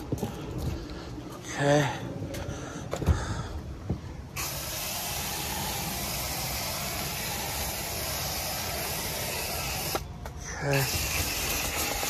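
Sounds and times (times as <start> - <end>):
spray gun hissing: 4.4 - 12.0.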